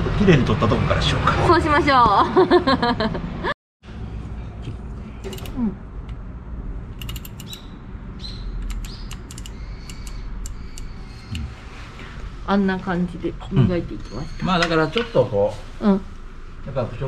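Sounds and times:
torque wrench ratchet clicking: 7.0 - 7.6, 8.6 - 10.9.

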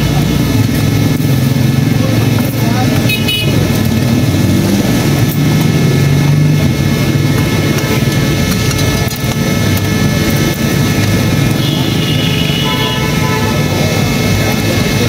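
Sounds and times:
faint voices: 13.1 - 15.0.

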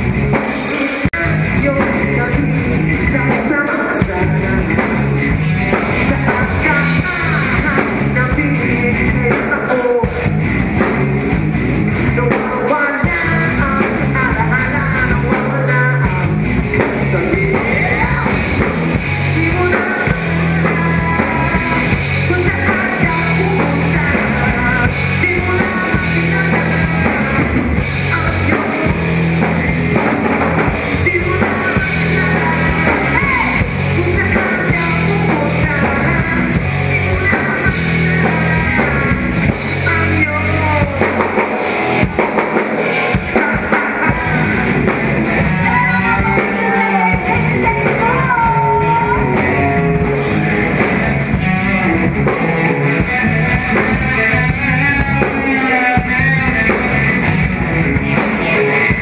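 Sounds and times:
rock band playing live: 0.0 - 59.0
person singing: 5.7 - 11.2, 12.1 - 41.6, 42.8 - 57.3.

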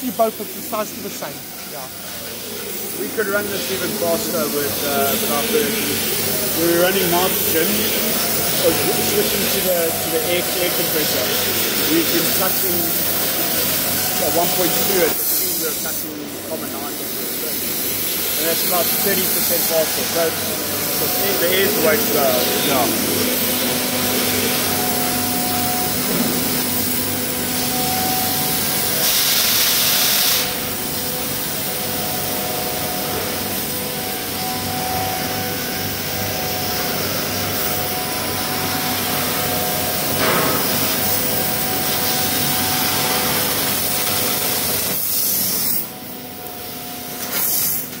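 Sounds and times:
air jet hissing: 0.0 - 36.1.

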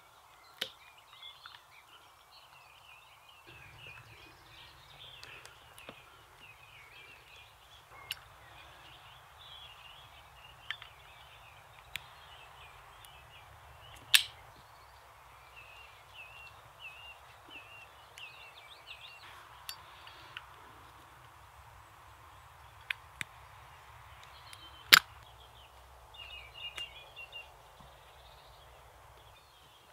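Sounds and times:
birds singing: 0.0 - 29.9
sharp clicks of handling: 13.9 - 14.4
wood snapping: 13.9 - 14.5, 24.2 - 25.3.

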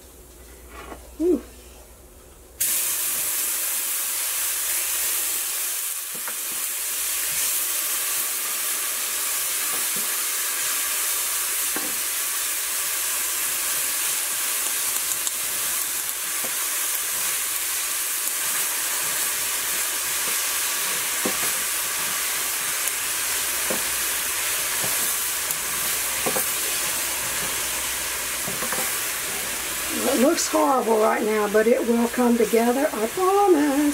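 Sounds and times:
roux sizzling in a frying pan: 2.6 - 33.9
wooden spoon tapping a pan: 23.6 - 23.9, 26.2 - 26.6.

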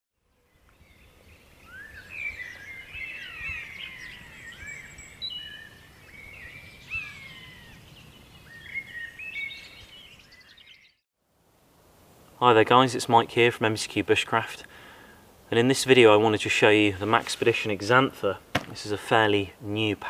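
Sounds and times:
songbirds singing: 0.2 - 11.0.

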